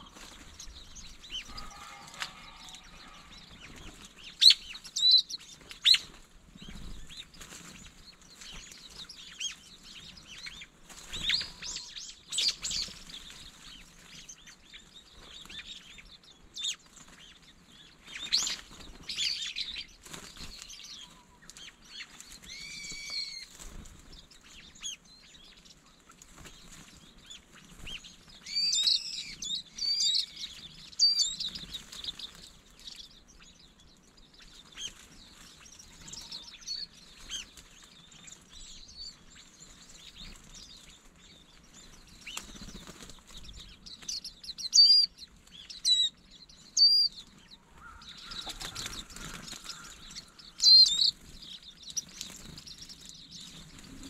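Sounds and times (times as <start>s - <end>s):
loud harsh bird calls: 0.0s - 7.0s, 44.2s - 53.0s
birds calling: 0.0s - 54.0s
scattered bird chirping: 0.0s - 54.0s.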